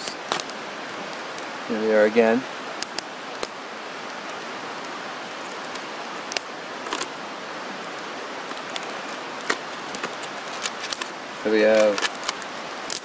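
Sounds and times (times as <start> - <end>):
river rushing: 0.0 - 13.0
cardboard box crinkling open: 8.6 - 13.0.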